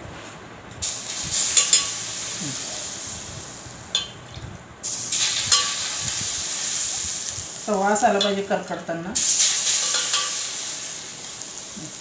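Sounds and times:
garlic sizzling in oil: 0.8 - 12.0
steel spoon clinking on pot: 1.6 - 2.0, 3.9 - 4.2, 5.4 - 5.8, 9.8 - 10.4.

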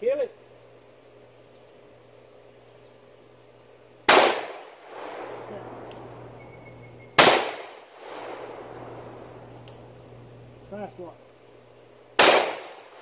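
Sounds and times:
pistol shots with long echo: 4.1 - 6.6, 7.2 - 9.5, 12.2 - 13.0.

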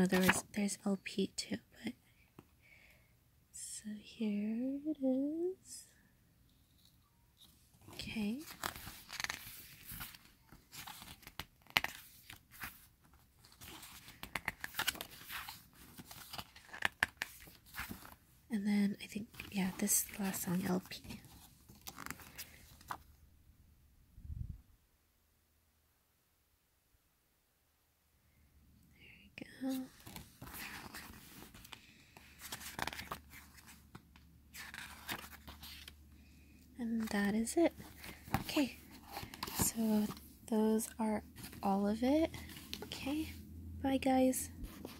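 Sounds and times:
glossy pages turning and rustling: 0.0 - 0.6, 6.5 - 18.2, 19.2 - 23.1, 29.7 - 36.3, 36.9 - 43.3, 44.6 - 44.9.

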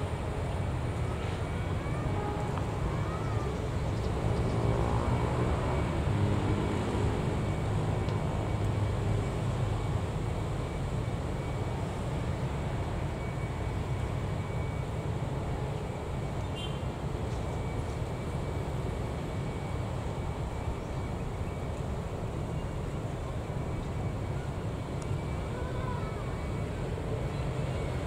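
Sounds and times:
street traffic hum: 0.0 - 28.0
motor scooters passing: 3.4 - 8.0.

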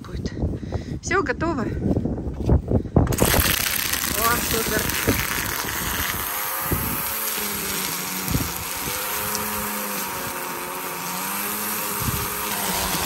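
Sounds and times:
string trimmer cutting grass: 3.0 - 13.0.

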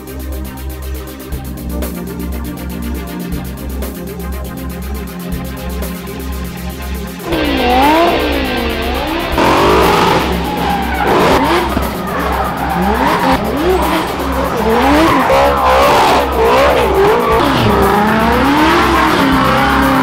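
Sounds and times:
background music with a beat: 0.0 - 20.0
car engines revving hard: 7.2 - 20.0
tyres squealing and skidding: 7.3 - 20.0.

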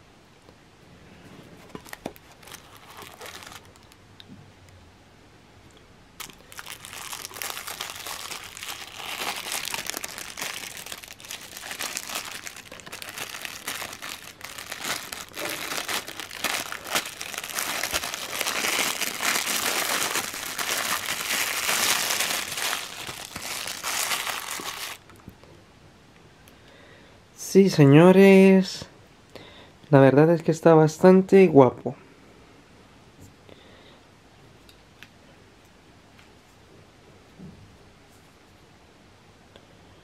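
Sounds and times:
plastic wrapping crinkling: 1.6 - 4.0, 6.2 - 25.2.

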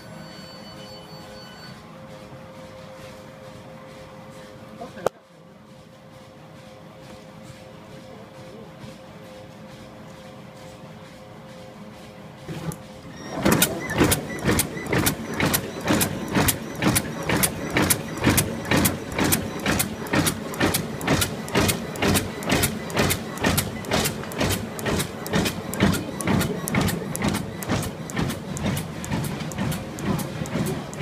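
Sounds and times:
die press clacking: 13.3 - 31.0.

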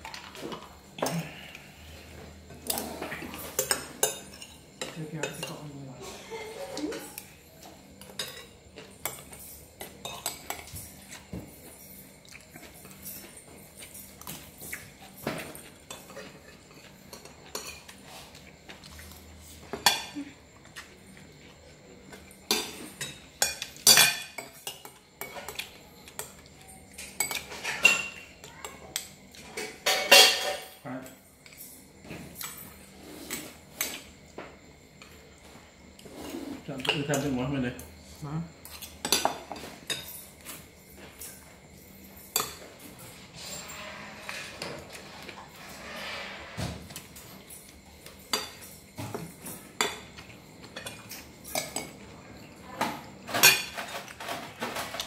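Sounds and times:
spoons clinking on plates: 2.5 - 5.8, 6.4 - 18.9, 19.6 - 34.1, 38.6 - 43.7, 46.9 - 55.0.

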